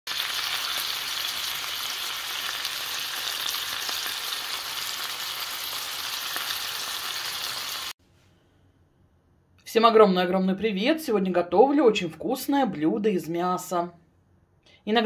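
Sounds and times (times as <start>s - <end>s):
meat sizzling in oil: 0.1s - 8.0s.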